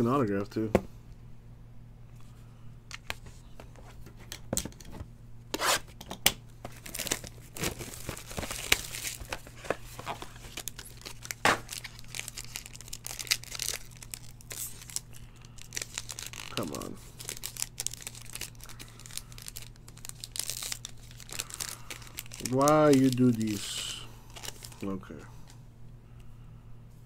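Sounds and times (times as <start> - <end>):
steady low hum: 0.0 - 27.0
foil pack crinkling: 6.6 - 25.5.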